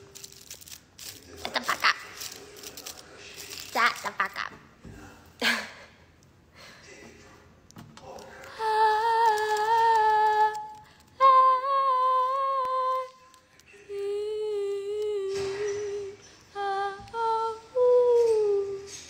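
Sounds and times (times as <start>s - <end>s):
woman humming: 8.6s - 13.2s, 13.9s - 19.0s.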